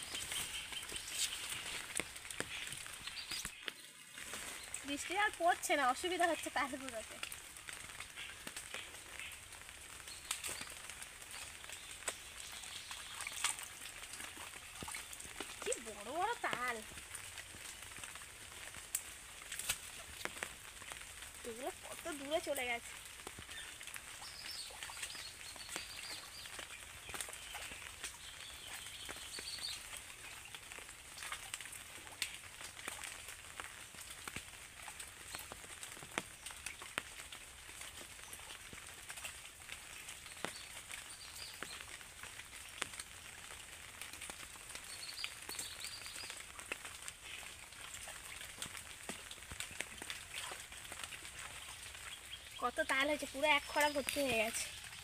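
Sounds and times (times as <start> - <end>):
small birds chirping: 0.0 - 7.2, 8.0 - 16.9, 21.5 - 31.4, 40.0 - 42.0, 44.7 - 47.5, 49.7 - 55.0
raindrops pattering on water and leaves: 0.0 - 55.0.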